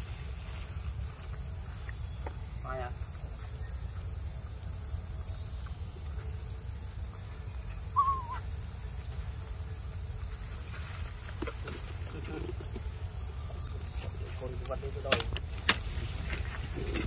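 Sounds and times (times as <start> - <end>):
high-pitched insect drone: 0.0 - 17.0
monkey call: 7.8 - 8.5.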